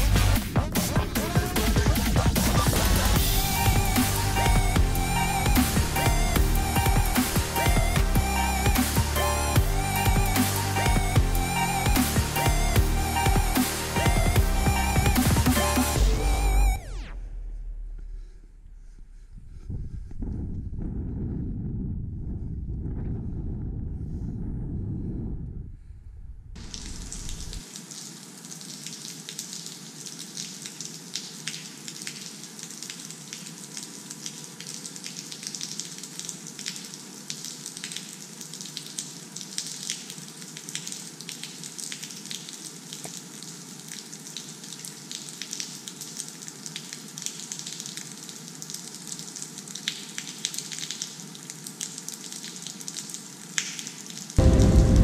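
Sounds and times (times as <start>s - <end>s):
water dripping onto wet rock: 26.6s - 54.4s.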